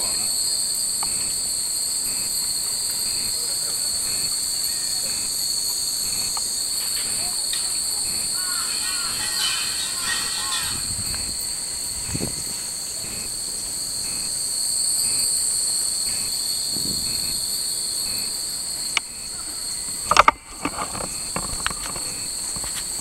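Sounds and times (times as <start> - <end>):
cicadas buzzing: 0.0 - 23.0
sharp clatters and knocks: 6.0 - 11.4, 20.0 - 23.0.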